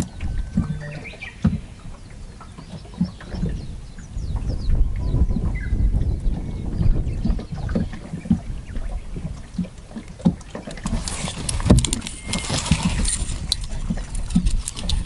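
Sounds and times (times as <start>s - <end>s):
water slapping a boat hull: 0.0s - 15.0s
sharp clicks and rustling: 10.3s - 15.0s.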